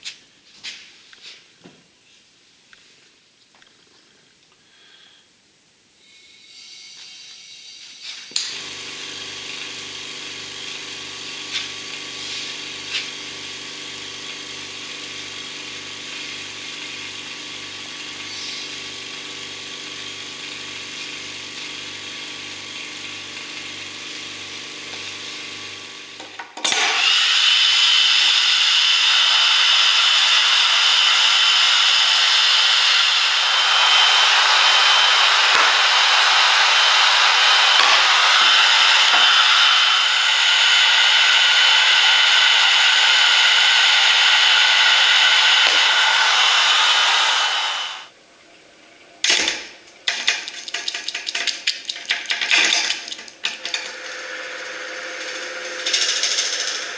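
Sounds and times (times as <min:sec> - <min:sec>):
heat gun blowing hiss and whine: 0:06.0 - 0:48.1, 0:53.4 - 0:56.9
vacuum pump pulsing: 0:08.4 - 0:26.2, 0:26.9 - 0:48.1, 0:53.4 - 0:56.9.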